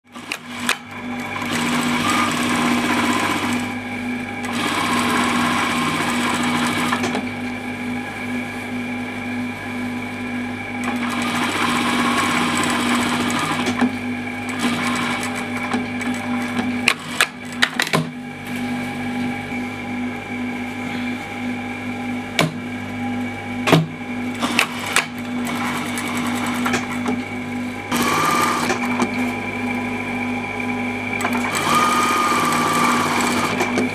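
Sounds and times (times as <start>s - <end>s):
sewing machine stitching: 0.1s - 3.8s, 4.4s - 7.3s, 10.8s - 18.1s, 24.4s - 27.2s, 27.9s - 29.3s, 31.2s - 33.9s.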